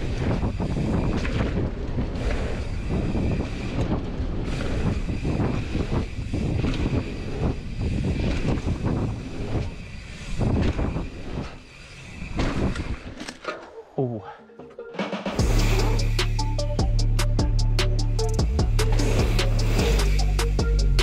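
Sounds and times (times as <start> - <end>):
wind buffeting microphone: 0.0 - 13.2
bike rattling and knocking: 0.0 - 13.6.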